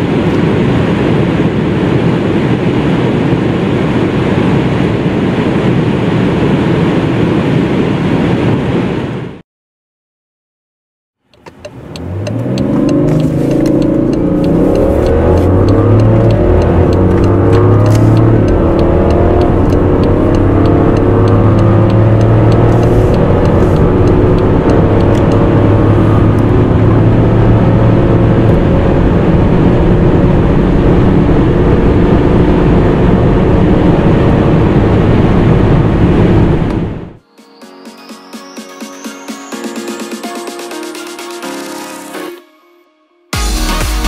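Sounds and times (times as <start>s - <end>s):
car engine accelerating hard: 11.4s - 37.2s.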